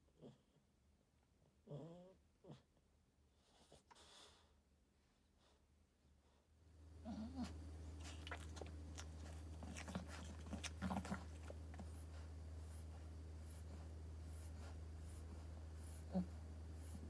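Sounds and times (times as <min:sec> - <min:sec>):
steady low hum: 0:00.0 - 0:17.0
dog grunting: 0:07.0 - 0:11.6.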